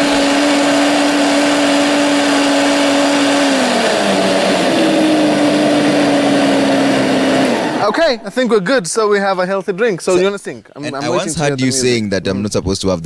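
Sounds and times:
blender motor whirring: 0.0 - 8.0.

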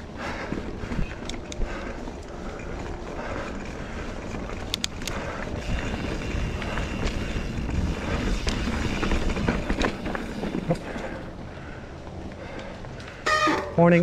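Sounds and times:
bike clicks and rattles: 0.0 - 14.0
bike tyres rolling on dirt: 0.0 - 14.0
wind on microphone: 5.2 - 9.8.

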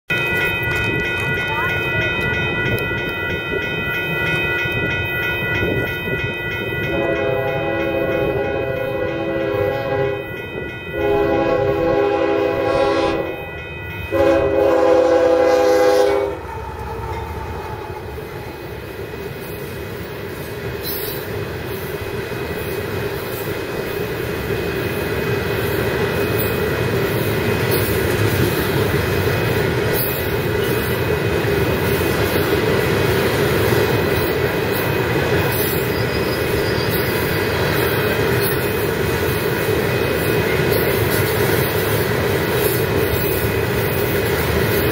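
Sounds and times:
locomotive horn blasts: 6.8 - 13.5, 14.1 - 16.5
train wheel clatter: 15.3 - 44.9.

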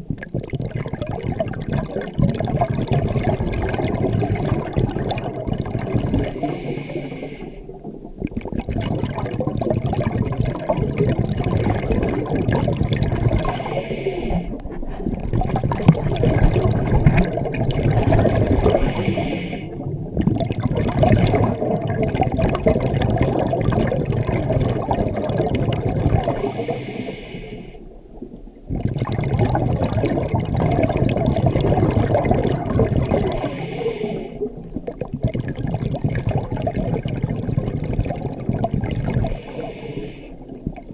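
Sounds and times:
exhaled bubbles rushing: 0.0 - 27.2, 27.9 - 40.9
regulator inhalation hiss: 6.4 - 7.6, 13.4 - 14.6, 18.8 - 19.8, 26.4 - 27.9, 33.4 - 34.5, 39.3 - 40.4.

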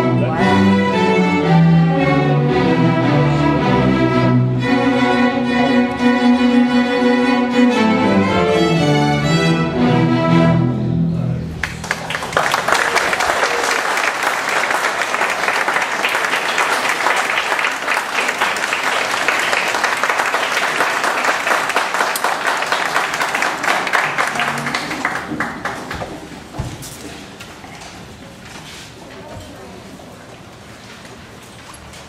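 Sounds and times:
audience clapping: 11.6 - 26.5.

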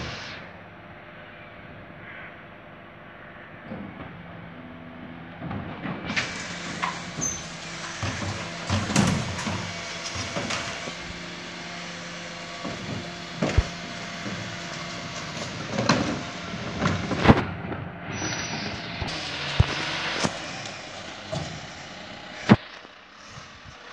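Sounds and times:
bin lorry engine humming: 0.0 - 23.9
plastic bins clunking and banging: 3.7 - 11.3, 12.4 - 17.9, 18.6 - 21.7.

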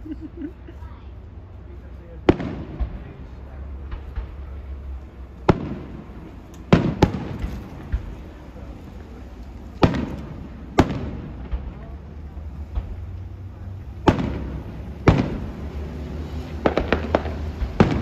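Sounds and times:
firework shells bursting: 2.2 - 18.0
small firework pops: 2.3 - 3.2, 5.4 - 13.4, 14.0 - 15.6, 16.6 - 18.0.

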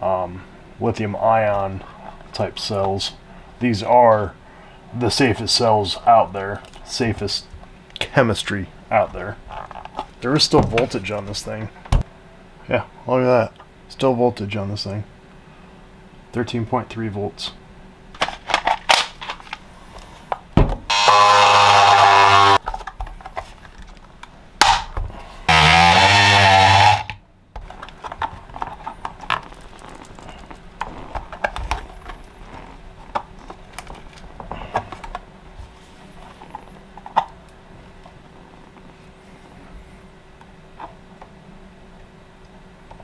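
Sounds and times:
cordless power tool motor: 20.9 - 22.6, 25.5 - 27.2.

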